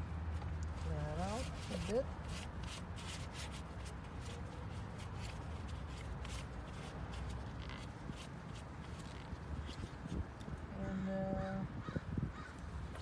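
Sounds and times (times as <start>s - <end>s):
paper towel rubbing metal: 0.9s - 10.1s.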